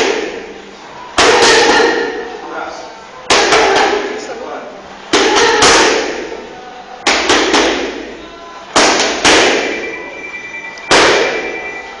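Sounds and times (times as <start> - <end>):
boxing gloves punching focus mitts: 7.0 - 8.0, 8.7 - 9.8.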